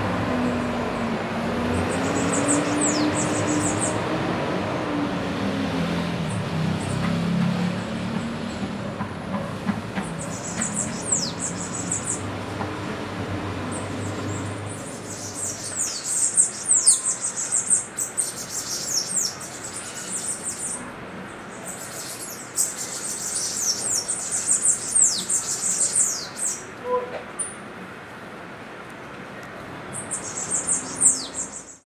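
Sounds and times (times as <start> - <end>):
birds singing high thin notes: 13.8 - 20.8.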